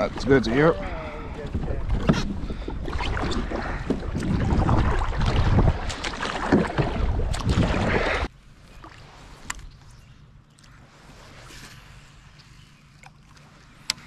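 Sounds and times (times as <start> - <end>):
wind rumble on microphone: 0.0 - 8.3
faint water sounds: 0.0 - 14.0
water splashing: 1.7 - 9.3.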